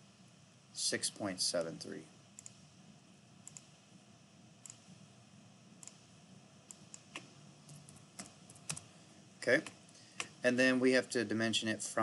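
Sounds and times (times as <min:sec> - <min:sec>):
computer mouse and keyboard clicks: 0:03.4 - 0:03.7, 0:05.8 - 0:06.0, 0:06.7 - 0:08.9.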